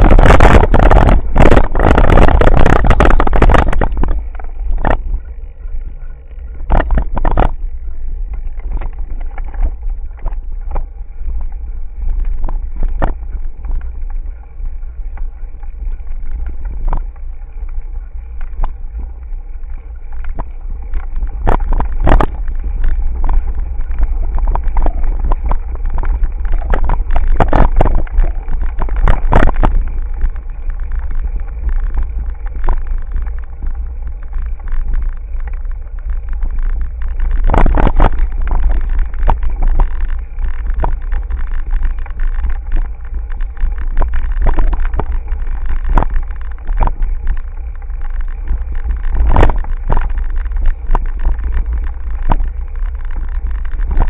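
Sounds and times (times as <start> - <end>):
bike knocking and rattling: 0.0 - 54.0
wind and road rumble: 0.0 - 54.0.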